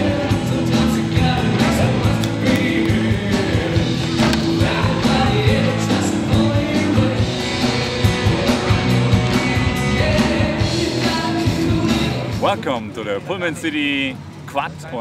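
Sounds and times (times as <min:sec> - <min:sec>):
person singing: 0:00.0 - 0:07.4
electric guitars: 0:00.0 - 0:12.4
rock music: 0:00.0 - 0:12.6
drums: 0:00.0 - 0:12.9.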